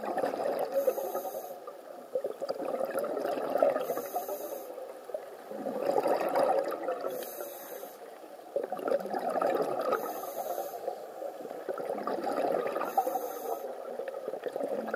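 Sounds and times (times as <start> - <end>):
regulator hissing inhale: 0.7 - 1.7, 3.8 - 4.9, 7.1 - 8.2, 9.9 - 11.2, 12.8 - 13.9
bubbling exhale: 11.8 - 14.9.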